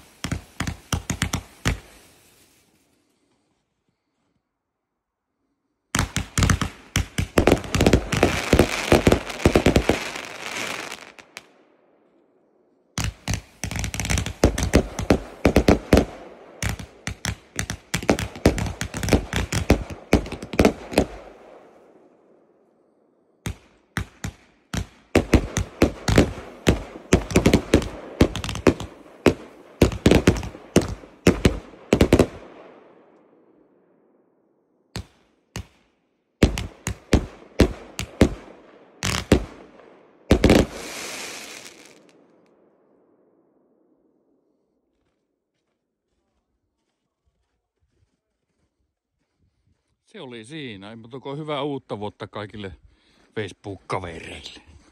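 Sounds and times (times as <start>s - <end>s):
crackling bursts: 0.0s - 2.9s, 6.0s - 11.5s, 13.0s - 21.8s, 23.4s - 32.5s, 36.4s - 42.6s
firework battery firing: 40.3s - 42.2s.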